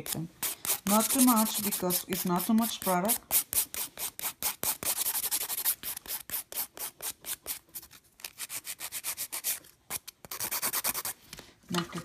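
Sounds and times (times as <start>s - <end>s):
nail file rasping: 0.0s - 11.2s.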